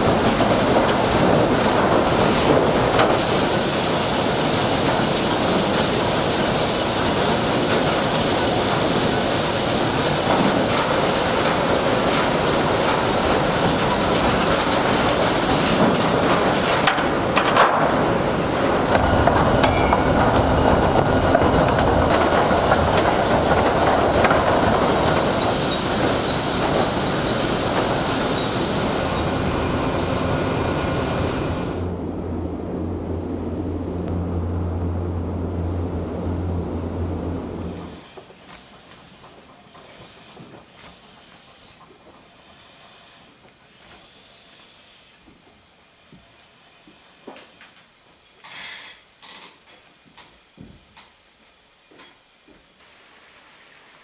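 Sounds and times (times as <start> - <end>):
sawmill machinery clattering: 0.0 - 31.9
machinery humming: 0.0 - 41.7.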